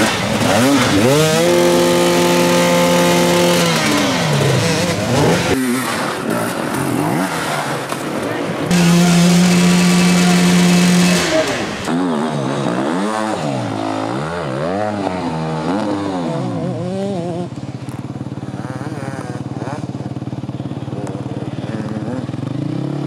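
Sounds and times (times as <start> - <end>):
dirt bike engine idling: 0.0 - 23.0
dirt bike engine revving: 0.0 - 23.0.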